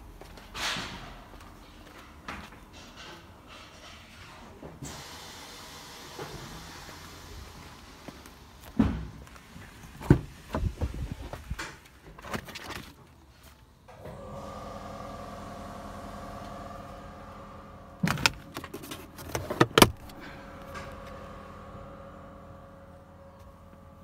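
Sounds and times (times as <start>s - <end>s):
steady multi-tone hum: 13.8s - 24.0s
clunks of car interior fittings: 18.0s - 20.2s.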